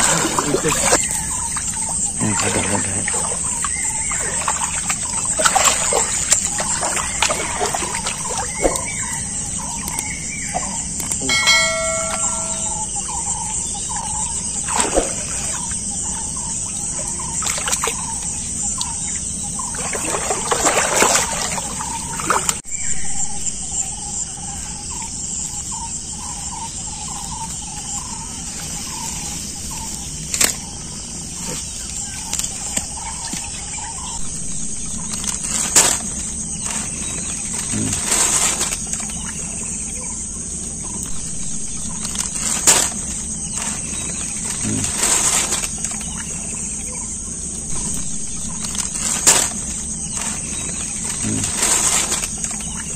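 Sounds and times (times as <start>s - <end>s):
high-pitched insect drone: 0.0s - 52.9s
net rustling: 43.6s - 46.0s, 48.6s - 52.6s.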